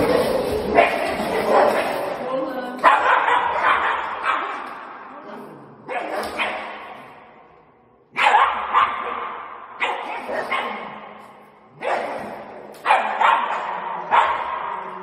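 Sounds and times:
small dog barking: 2.8s - 4.6s, 8.2s - 10.9s, 12.8s - 14.5s.

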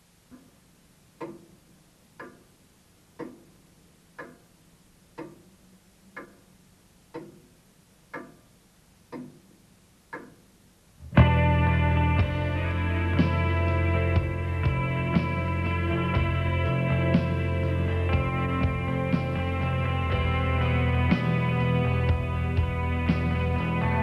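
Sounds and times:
clock ticking: 0.2s - 11.4s
loud music with sustained tones: 11.0s - 24.0s.

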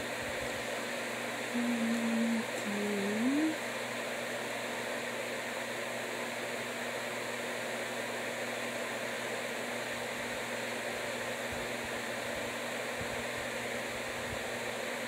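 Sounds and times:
fan-like hiss: 0.0s - 15.0s
faint low hum: 1.5s - 3.6s.

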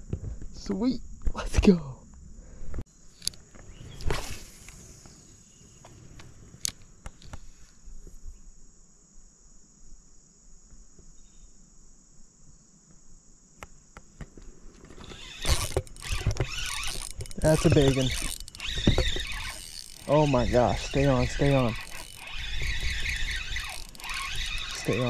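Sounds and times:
insect chorus drone: 0.0s - 25.0s
fishing reel clicks: 15.0s - 25.0s.

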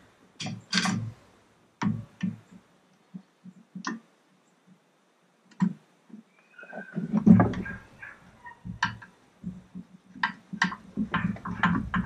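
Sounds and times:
hand tools knocking on metal: 8.6s - 12.0s.

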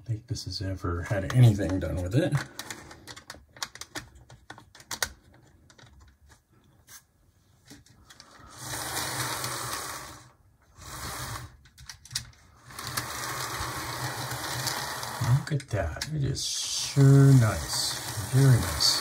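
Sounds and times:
sharp plastic clicks: 1.2s - 6.2s
model train motor whirring: 8.3s - 11.6s, 12.6s - 15.6s, 16.4s - 19.0s.

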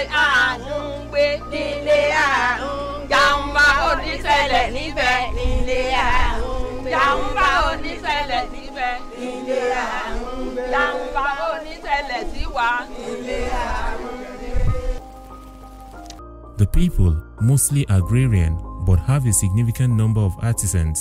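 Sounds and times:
women singing call-and-response: 0.0s - 15.0s.

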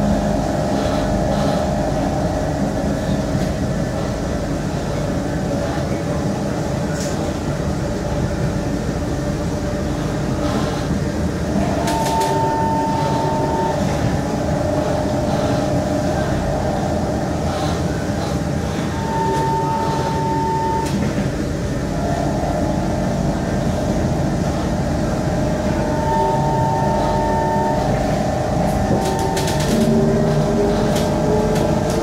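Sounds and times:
train wheels rumbling on track: 0.0s - 32.0s
steady high tone: 11.5s - 32.0s.

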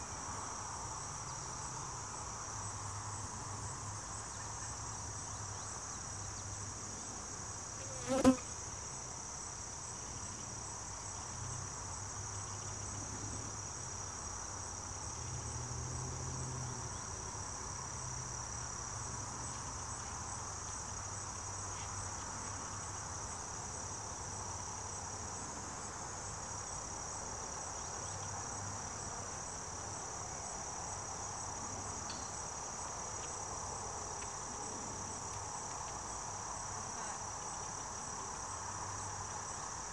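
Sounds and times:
insects singing: 7.8s - 8.6s.

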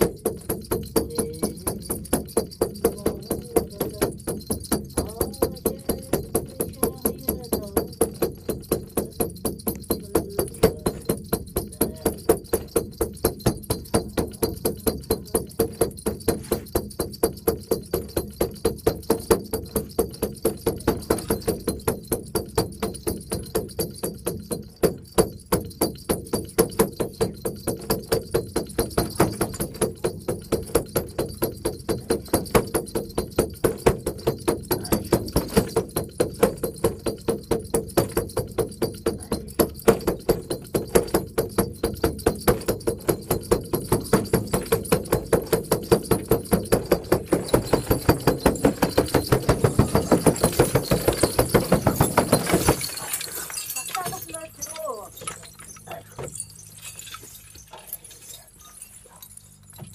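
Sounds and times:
frame drum beaten fast: 0.0s - 55.1s.

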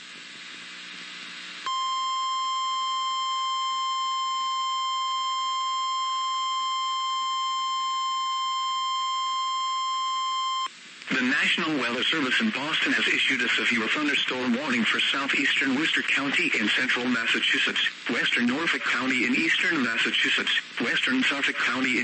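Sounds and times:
faint radio hiss: 0.0s - 6.7s, 7.6s - 22.0s
steady high alarm tone: 1.7s - 10.7s.

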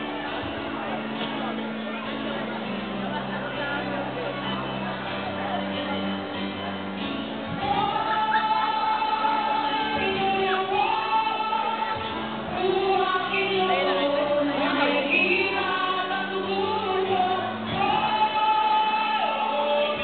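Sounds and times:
musical accompaniment: 0.0s - 20.0s
people singing into microphones: 7.6s - 20.0s.

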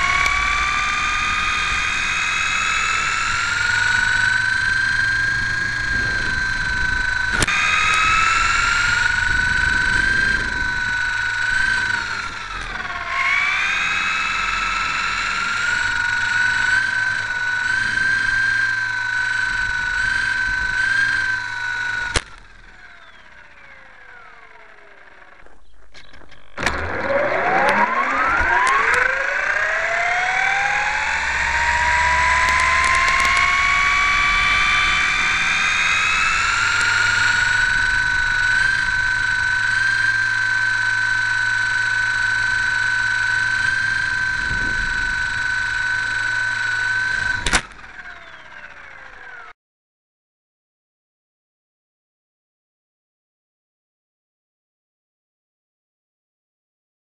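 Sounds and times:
model airplane motor whining: 0.0s - 49.6s.

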